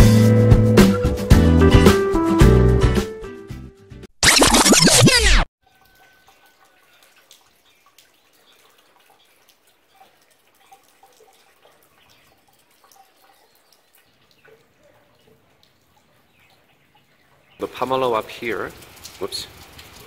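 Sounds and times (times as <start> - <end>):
faint water dripping: 5.6 - 20.0.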